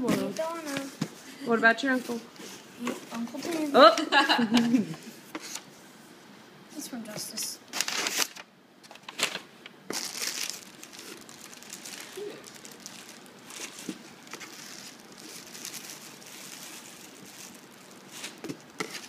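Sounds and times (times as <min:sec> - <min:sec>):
tissue paper rustling and crinkling: 0:07.7 - 0:08.4, 0:09.0 - 0:19.0.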